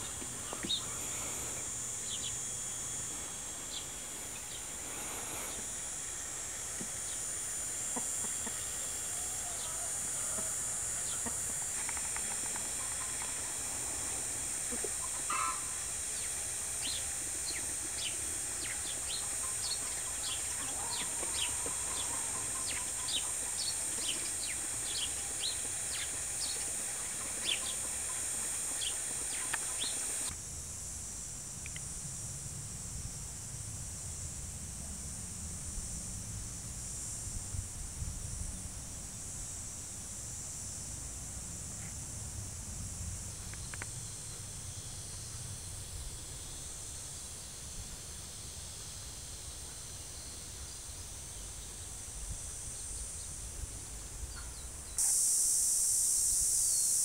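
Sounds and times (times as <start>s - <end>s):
high-pitched insect drone: 0.0s - 57.0s
chickens clucking softly: 7.9s - 13.5s, 14.7s - 15.7s.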